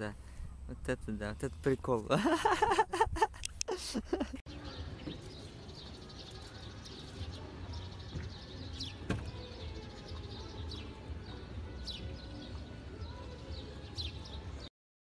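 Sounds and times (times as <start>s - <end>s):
small birds chirping: 4.5s - 14.7s.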